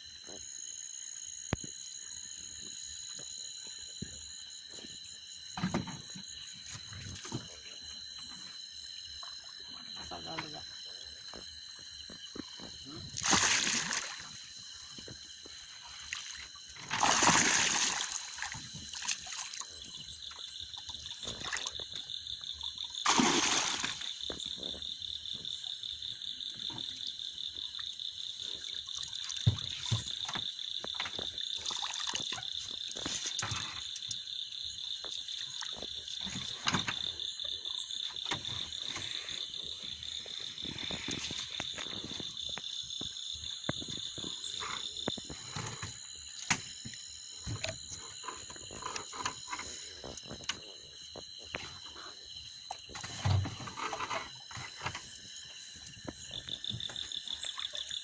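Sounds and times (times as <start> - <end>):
frogs trilling: 0.0 - 58.0
net splashing in water: 13.2 - 14.3, 16.9 - 19.6, 23.0 - 24.1.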